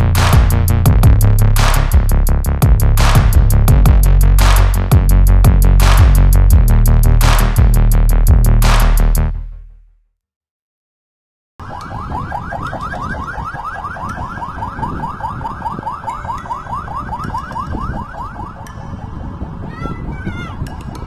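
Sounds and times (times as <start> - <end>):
electronic alarm chirping: 12.0 - 18.4.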